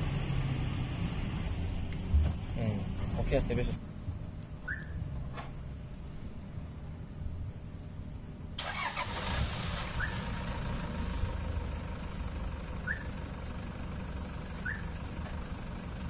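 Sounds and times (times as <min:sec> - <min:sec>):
car engine starting and idling: 0:08.5 - 0:16.0.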